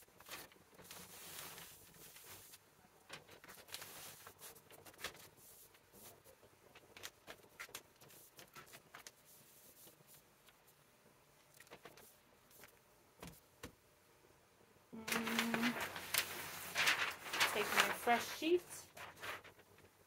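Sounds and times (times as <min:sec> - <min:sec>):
fabric rustling: 0:00.0 - 0:10.8, 0:15.0 - 0:20.0.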